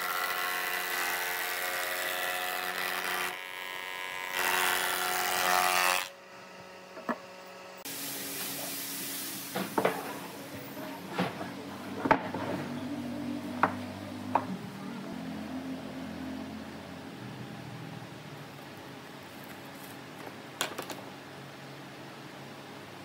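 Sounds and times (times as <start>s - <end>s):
wood planer whining: 0.0s - 7.8s
wooden boards knocking: 13.6s - 14.5s.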